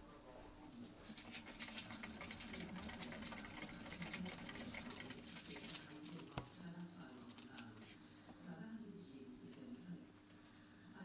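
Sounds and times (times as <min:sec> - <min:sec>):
rodent running in exercise wheel: 0:00.7 - 0:08.0.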